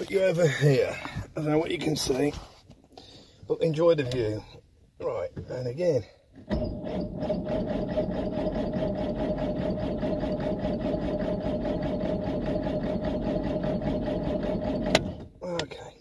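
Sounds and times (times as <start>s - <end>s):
starter motor cranking engine: 6.5s - 15.3s.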